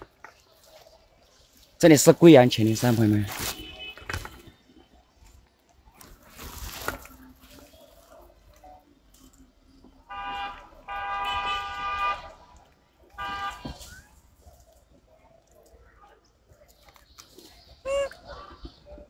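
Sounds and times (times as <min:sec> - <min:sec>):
vehicle horn honking: 0:03.5 - 0:04.1, 0:10.1 - 0:12.3, 0:13.2 - 0:13.8.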